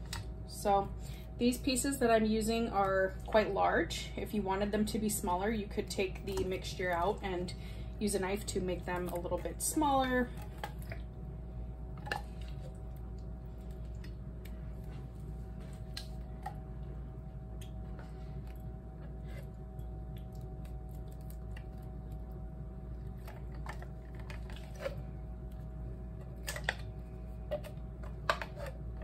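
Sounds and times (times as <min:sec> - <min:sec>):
low hum: 0:00.0 - 0:29.0.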